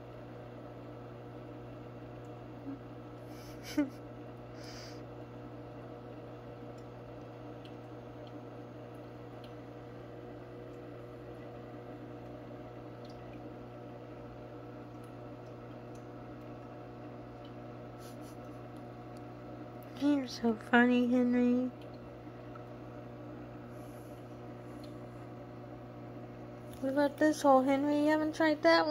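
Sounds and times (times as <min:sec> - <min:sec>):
aquarium pump humming: 0:00.0 - 0:28.9
faint water dripping: 0:06.2 - 0:20.1, 0:21.7 - 0:25.4.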